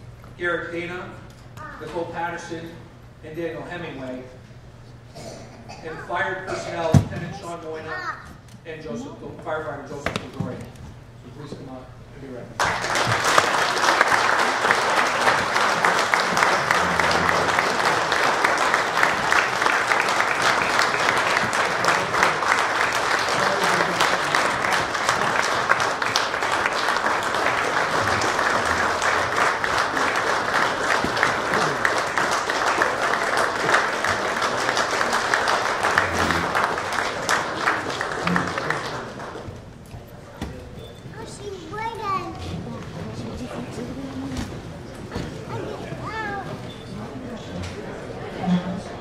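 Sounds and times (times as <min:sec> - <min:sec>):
crowd applauding: 0:12.6 - 0:39.7.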